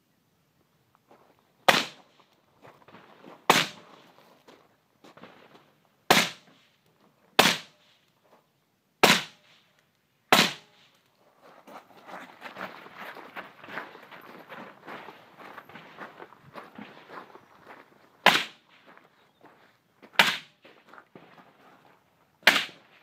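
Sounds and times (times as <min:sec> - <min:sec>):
rifle shots with echo: 0:01.7 - 0:02.0, 0:03.5 - 0:03.9, 0:06.1 - 0:06.5, 0:07.4 - 0:07.8, 0:09.0 - 0:09.5, 0:10.3 - 0:10.8, 0:18.2 - 0:18.6, 0:22.4 - 0:23.0.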